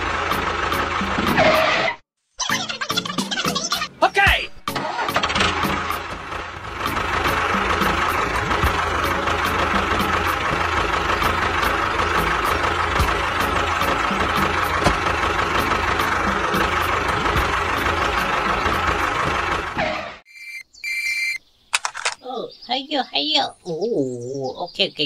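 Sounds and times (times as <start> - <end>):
diesel tractor engine idling: 0.0 - 1.6, 5.0 - 20.2.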